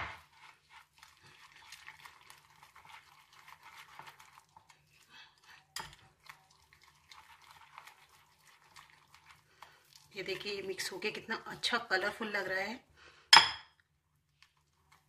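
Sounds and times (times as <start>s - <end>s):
whisk scraping in glass bowl: 0.0s - 10.7s.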